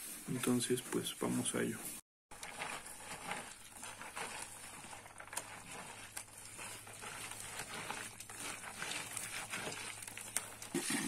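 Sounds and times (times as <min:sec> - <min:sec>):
corn kernels rubbed in a basket: 0:00.0 - 0:11.0.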